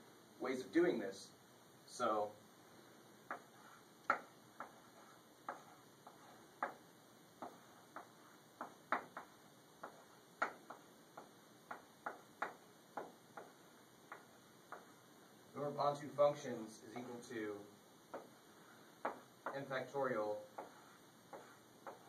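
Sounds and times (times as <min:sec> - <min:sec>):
chalk tapping on blackboard: 0:03.2 - 0:15.0, 0:16.9 - 0:17.4, 0:18.1 - 0:22.0.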